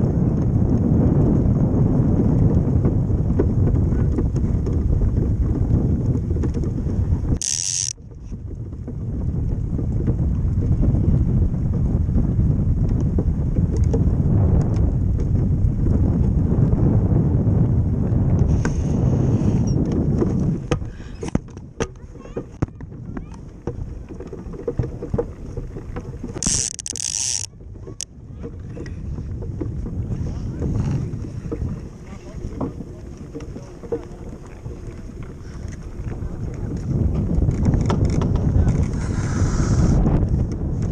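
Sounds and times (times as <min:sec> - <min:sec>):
runners rumbling on ice: 0:00.0 - 0:40.9
wind rushing over microphone: 0:00.0 - 0:40.9
sharp click: 0:07.4 - 0:08.0, 0:26.4 - 0:27.5.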